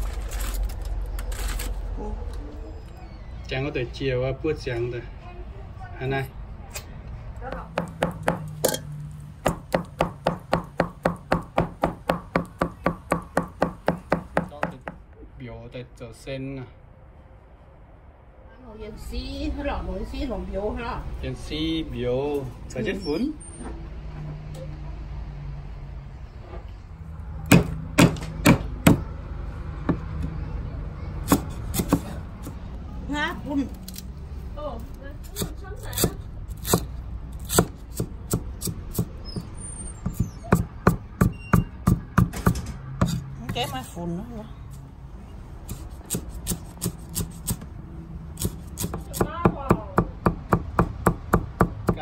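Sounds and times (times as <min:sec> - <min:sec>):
cleaver chopping on wooden board: 0:07.5 - 0:08.7, 0:09.4 - 0:14.9, 0:27.5 - 0:29.0, 0:31.3 - 0:32.2, 0:48.4 - 0:52.0.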